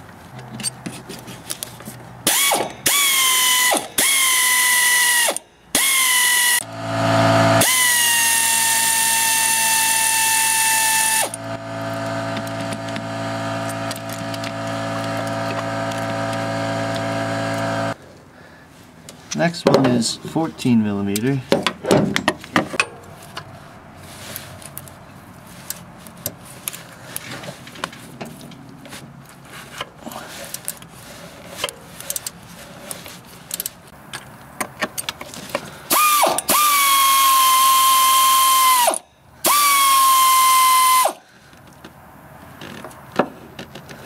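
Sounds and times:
ratchet clicking: 2.3 - 6.6, 7.6 - 17.7, 35.9 - 41.2
power tool whining: 2.3 - 18.0, 35.9 - 41.2.

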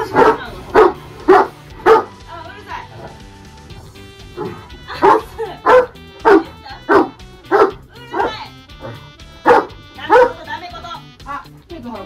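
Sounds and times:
dog barking: 0.0 - 2.2, 4.4 - 10.4
background music: 0.0 - 12.0.

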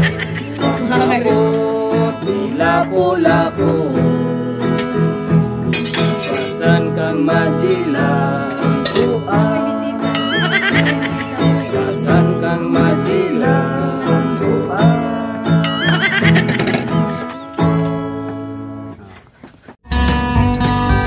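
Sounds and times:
man singing: 0.0 - 5.4, 6.0 - 16.4
strummed acoustic guitar: 0.0 - 19.0, 19.8 - 21.0.

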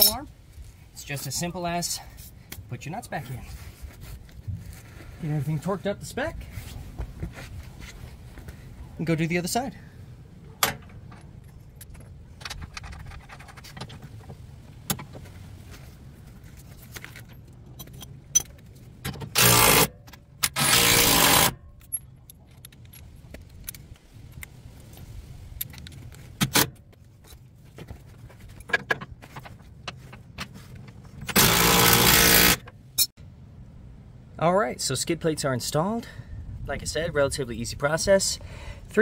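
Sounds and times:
metal tools clinking: 0.0 - 0.3, 16.7 - 18.8.

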